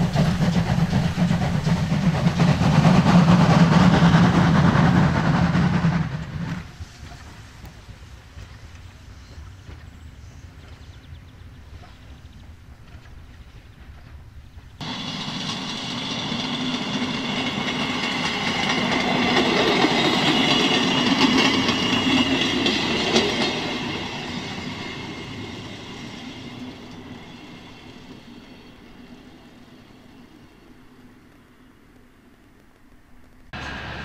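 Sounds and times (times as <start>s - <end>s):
rail draisine engine passing: 0.0s - 31.8s, 33.5s - 34.0s.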